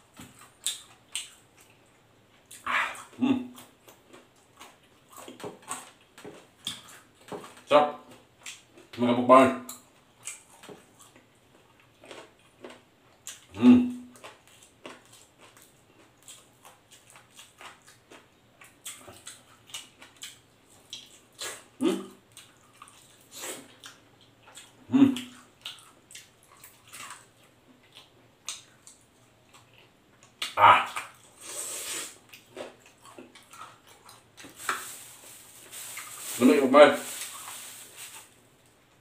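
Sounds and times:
eating crunches: 0:14.2 - 0:38.8.

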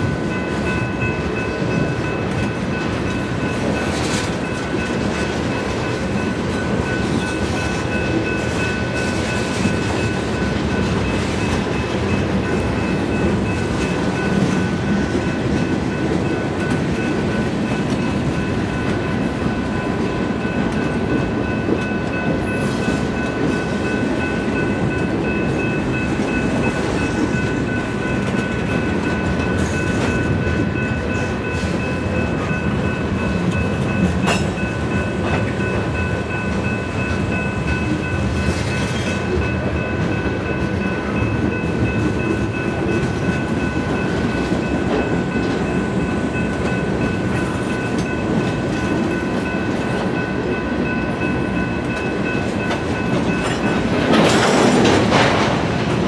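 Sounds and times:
steel wheels rumbling on rails: 0:00.0 - 0:56.0.

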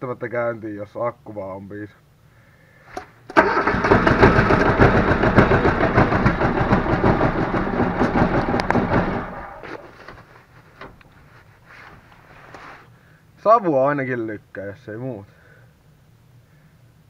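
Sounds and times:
diesel engine cranking: 0:03.3 - 0:10.2.

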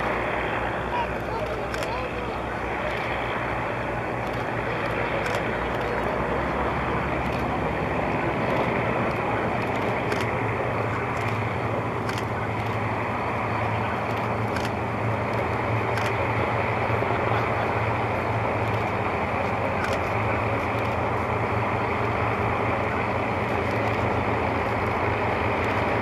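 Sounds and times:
aircraft engines droning: 0:00.0 - 0:26.0.

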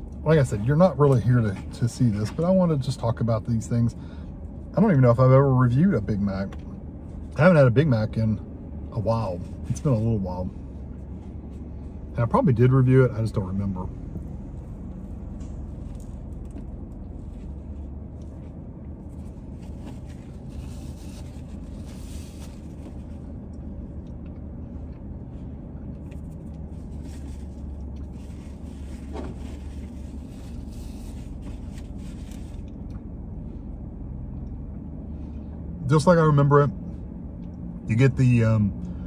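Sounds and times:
low rumble inside car: 0:00.0 - 0:39.0.

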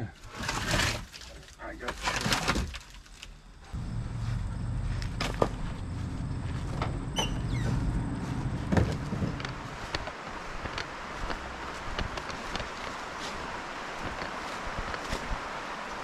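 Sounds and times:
vehicle engine humming: 0:03.7 - 0:14.4.

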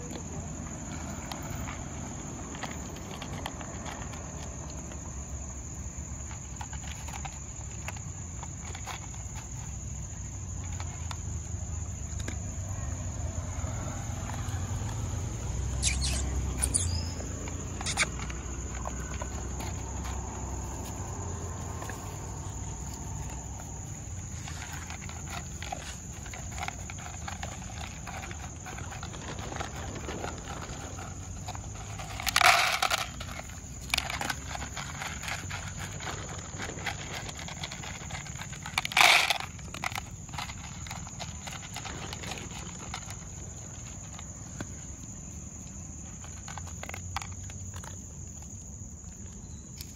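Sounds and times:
dogs crunching dry kibble: 0:00.0 - 0:49.9
high insect drone: 0:12.8 - 0:36.2.

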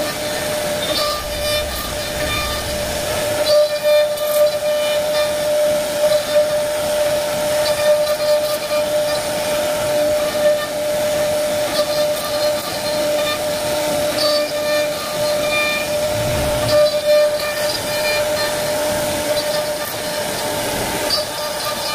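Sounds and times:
router spindle whining: 0:00.0 - 0:05.5.

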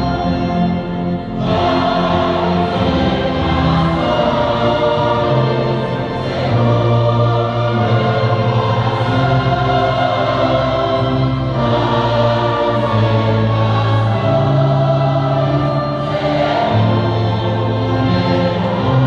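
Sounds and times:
choir singing a hymn: 0:00.0 - 0:19.0
orchestra with violins: 0:00.0 - 0:19.0.

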